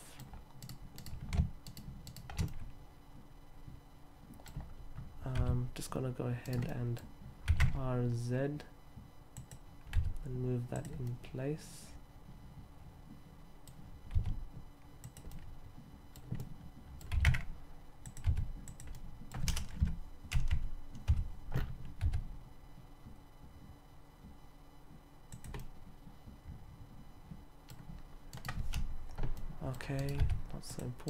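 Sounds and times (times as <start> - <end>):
keyboard keys clicking: 16.2 - 22.3, 25.3 - 25.7.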